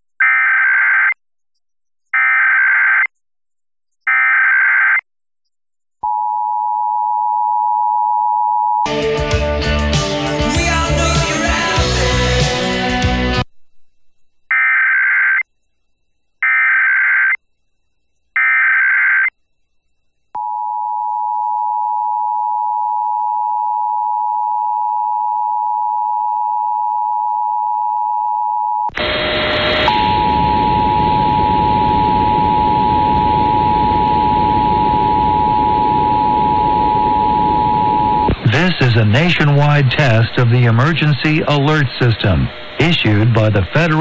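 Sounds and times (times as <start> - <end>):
radio music: 10.0 - 13.5, 28.9 - 44.0
digital data tone bursts: 29.9 - 44.0.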